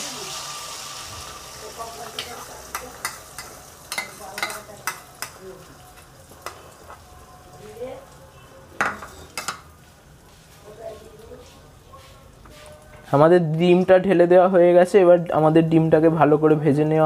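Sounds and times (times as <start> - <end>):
eggs sizzling in hot oil: 0.0 - 12.9.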